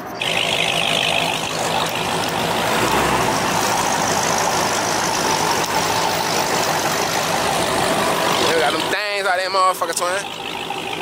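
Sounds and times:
vehicle engine idling: 0.0 - 11.0.

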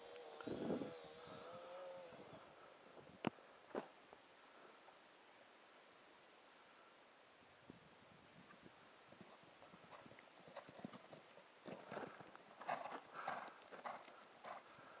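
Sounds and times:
horse hoofbeats on soft ground: 8.4 - 15.0.

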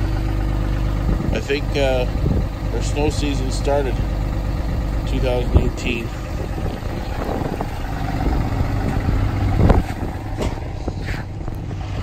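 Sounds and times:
vehicle engine idling: 0.0 - 12.0
dull thumps: 7.3 - 11.6.

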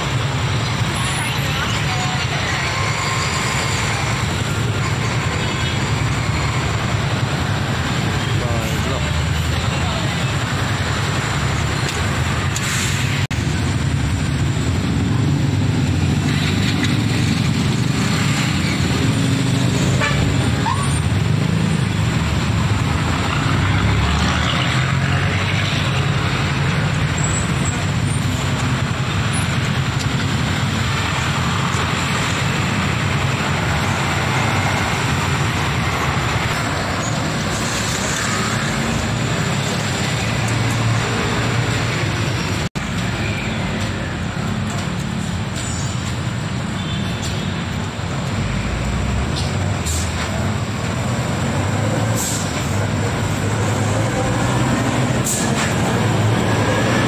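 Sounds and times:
road traffic engine rumble: 0.0 - 57.0
cargo truck passing close: 47.6 - 57.0.

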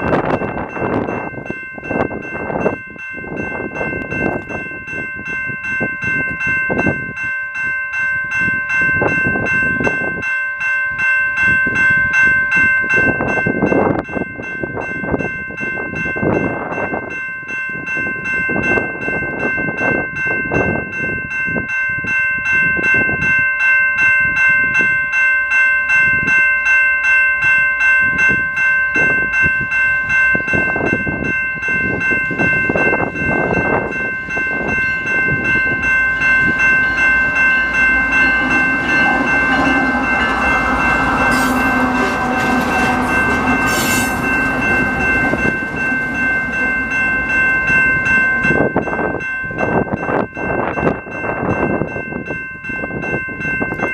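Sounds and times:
diesel locomotives passing: 0.0 - 10.2, 28.0 - 53.9
railway crossing bell ringing: 0.0 - 53.9.

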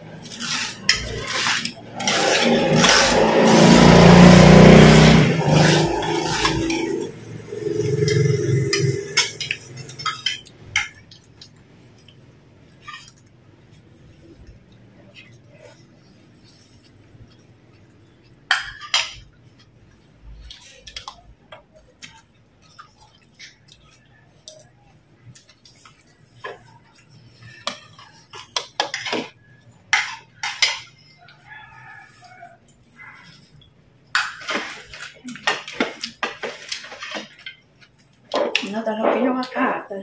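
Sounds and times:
spoons clinking on ceramic bowls: 7.7 - 12.2, 18.5 - 19.3.

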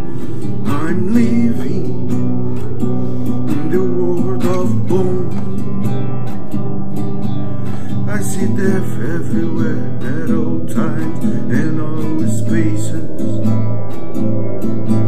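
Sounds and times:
man singing: 0.0 - 6.2, 7.9 - 13.7
classical guitar strummed chords: 0.0 - 15.0.

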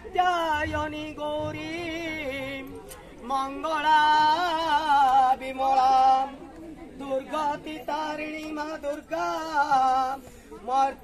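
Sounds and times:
person singing devotional song: 0.0 - 6.4.

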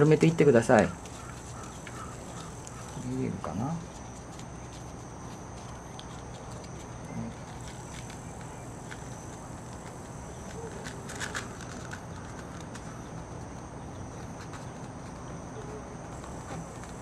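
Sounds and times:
high drone of insects: 0.0 - 17.0
paper rustling and crinkling: 0.0 - 17.0.

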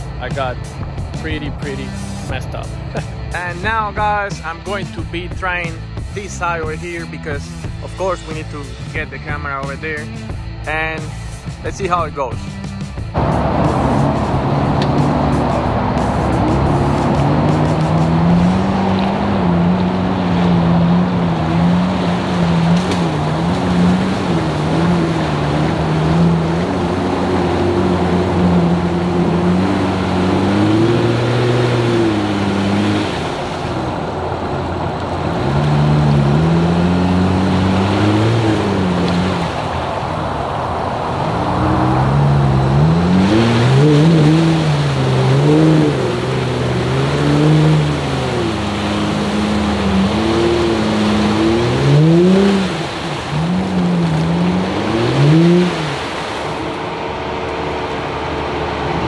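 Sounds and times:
car engine revving: 0.0 - 59.0
water sloshing: 13.7 - 59.0.

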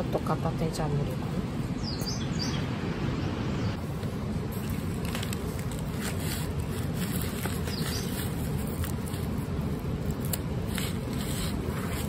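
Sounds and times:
low outdoor rumble: 0.0 - 12.0
bird chirp: 1.8 - 3.8, 7.6 - 8.3
clicks and scrapes handling garlic: 4.6 - 12.0.

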